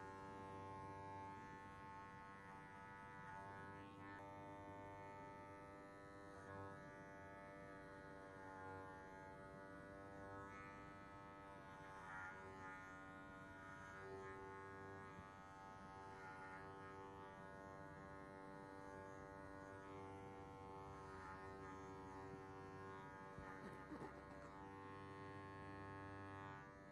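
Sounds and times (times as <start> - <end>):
electric hair clippers buzzing: 10.4 - 15.4, 16.0 - 26.7.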